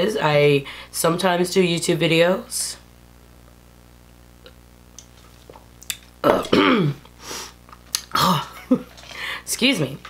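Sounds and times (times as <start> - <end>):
woman burping: 6.2 - 7.1, 8.0 - 8.9.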